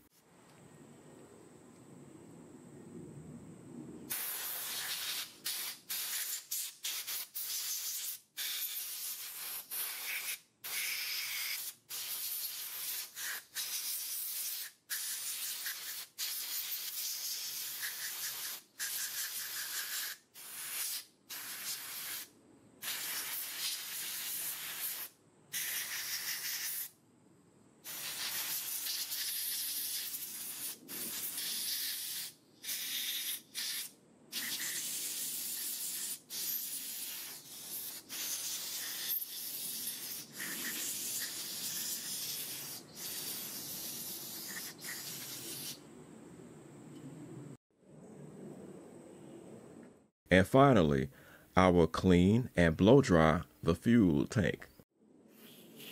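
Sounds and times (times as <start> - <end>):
air blow gun hissing: 4.1 - 26.9, 27.9 - 45.8.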